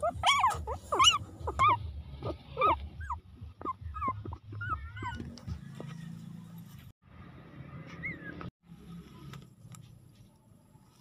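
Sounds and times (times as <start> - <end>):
puppies whimpering and squeaking: 0.0 - 6.2, 7.8 - 8.5.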